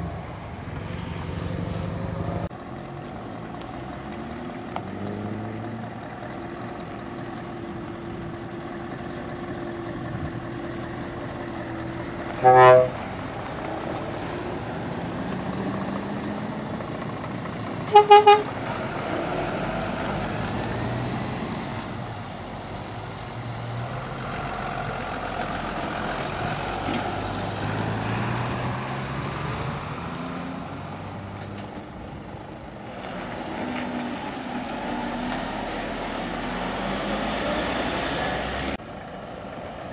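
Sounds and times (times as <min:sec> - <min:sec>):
trucks driving past: 0:00.0 - 0:39.9
truck horn blasts: 0:12.4 - 0:13.2, 0:17.9 - 0:18.6.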